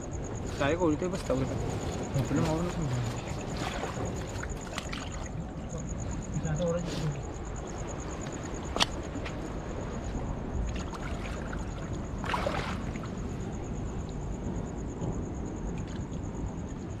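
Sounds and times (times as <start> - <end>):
seawater sloshing among rocks: 0.4 - 14.0
wet net hauled through water: 0.5 - 9.5, 10.6 - 14.0
water splash: 2.1 - 5.4, 10.7 - 13.2.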